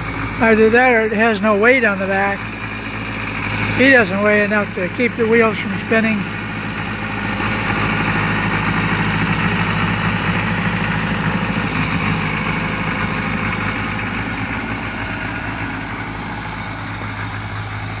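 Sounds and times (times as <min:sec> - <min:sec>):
tires on gravel: 0:00.0 - 0:18.0
tractor engine running: 0:00.0 - 0:18.0.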